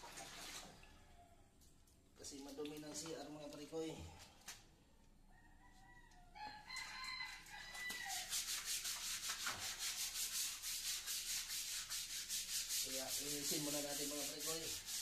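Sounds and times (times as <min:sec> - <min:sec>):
hand scrubbing tiled floor: 0:07.4 - 0:15.0.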